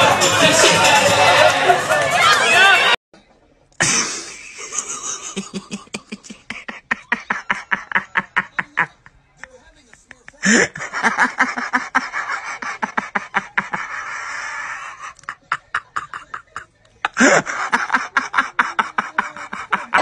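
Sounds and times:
person laughing heartily: 3.8s - 9.2s, 10.0s - 20.0s.

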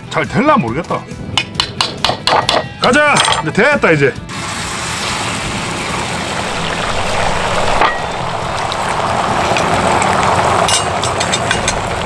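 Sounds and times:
eggs sizzling in hot oil: 4.3s - 12.0s.

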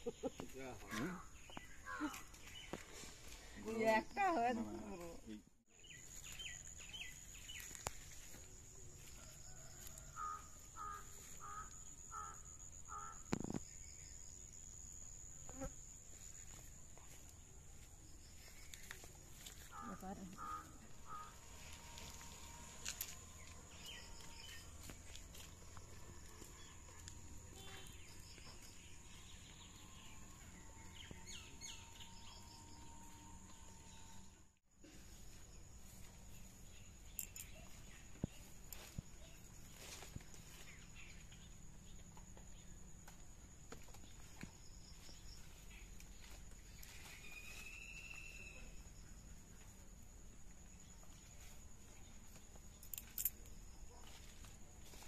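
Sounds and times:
insects droning: 0.0s - 55.0s
bird calling: 19.6s - 23.1s.

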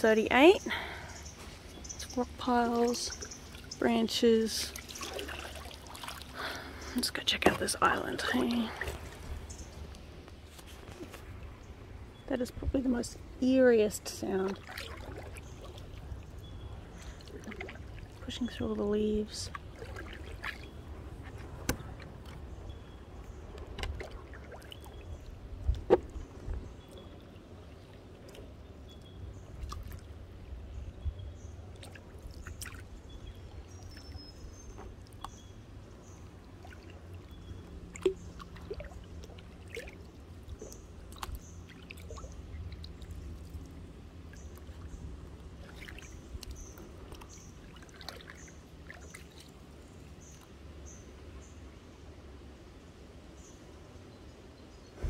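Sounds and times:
water trickling and sloshing: 0.0s - 55.0s
paddle dipping in water: 4.5s - 11.9s, 14.3s - 30.6s, 31.4s - 50.6s.

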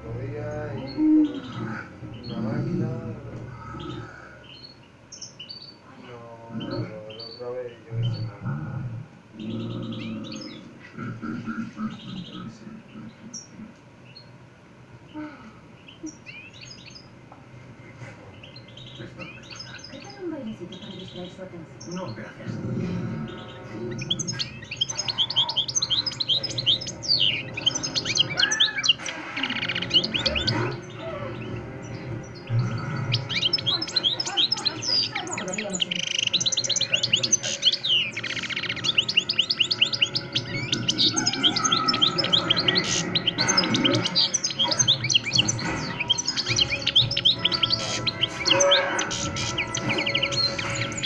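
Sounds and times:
goldfinch twittering and trilling: 15.8s - 17.2s, 18.4s - 22.3s, 23.2s - 51.0s.

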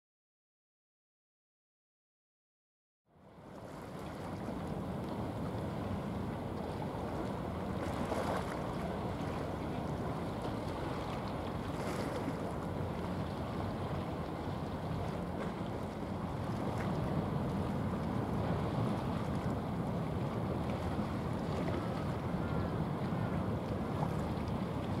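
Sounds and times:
sea noise: 3.1s - 25.0s
wind: 3.1s - 25.0s.

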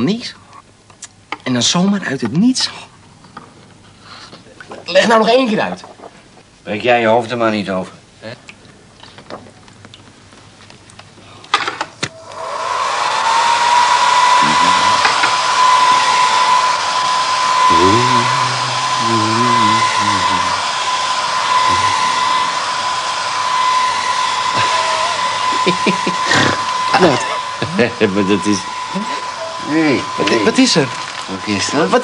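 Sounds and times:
electric whirring hum: 12.0s - 32.0s
hissing rush: 12.1s - 32.0s.

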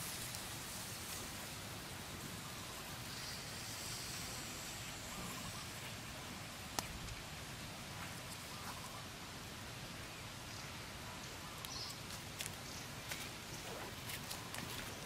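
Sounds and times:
wood fire crackle: 0.0s - 2.8s, 5.7s - 8.8s, 11.6s - 15.0s.

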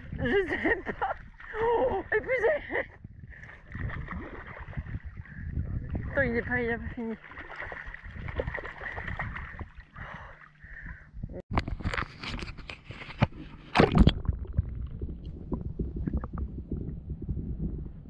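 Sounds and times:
water splashing: 3.4s - 10.6s, 13.0s - 17.1s
muffled underwater gurgling: 4.7s - 6.7s, 13.7s - 18.0s.

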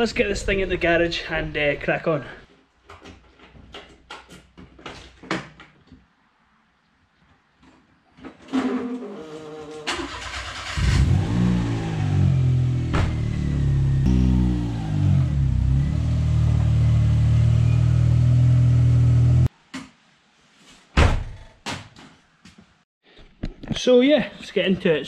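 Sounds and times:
car engine revving: 10.2s - 19.5s
sharp thump: 12.8s - 14.3s.

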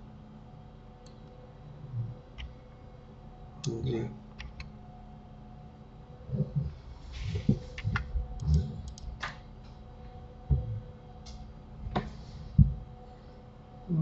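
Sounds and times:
faint steady hum: 0.0s - 14.0s
keyboard and mouse clicking: 4.4s - 4.7s, 7.7s - 9.4s.

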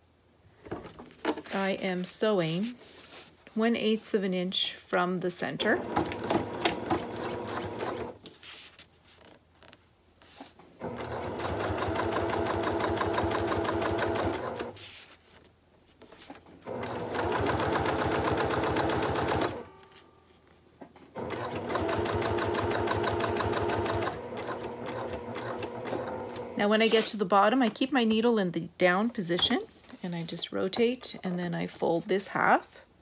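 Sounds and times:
sewing machine stitching: 5.6s - 8.2s, 10.8s - 14.8s, 16.6s - 19.7s, 21.2s - 26.6s.

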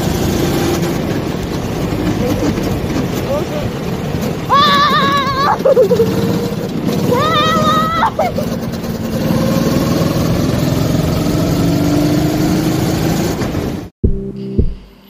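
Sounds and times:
go-kart engine running: 0.0s - 13.9s
music with plucked and keyboard notes: 14.0s - 15.0s.

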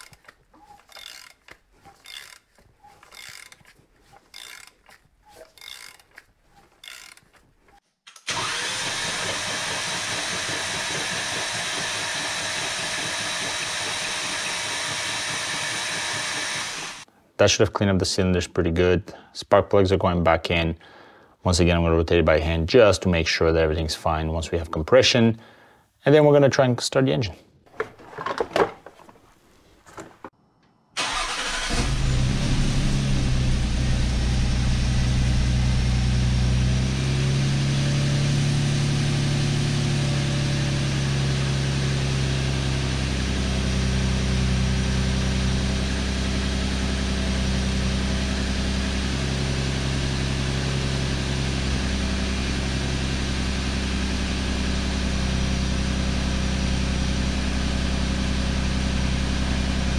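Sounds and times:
car engine cranking and idling: 8.3s - 17.0s, 31.0s - 59.9s.

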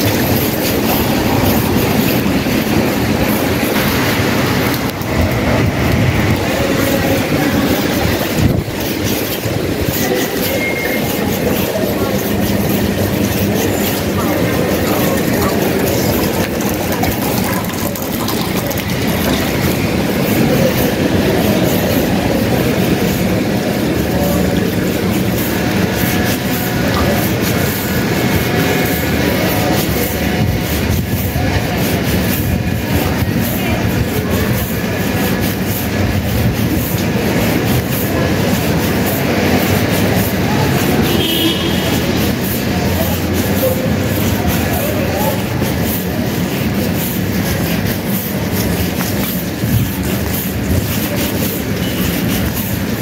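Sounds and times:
wind buffeting microphone: 0.0s - 10.3s.

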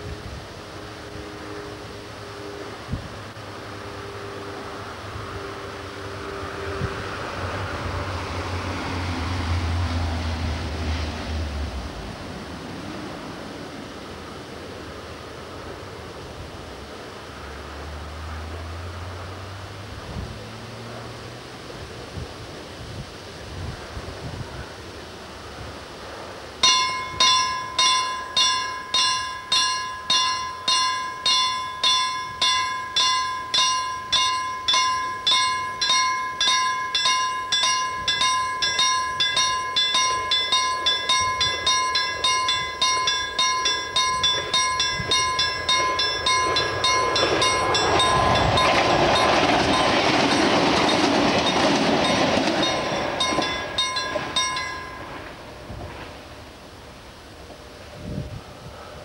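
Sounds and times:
diesel train running: 0.0s - 59.0s
level crossing bell ringing: 26.6s - 55.3s.

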